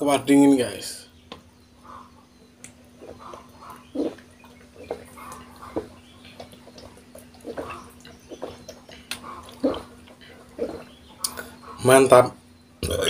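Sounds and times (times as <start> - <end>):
person gulping wet swallows: 3.1 - 11.6.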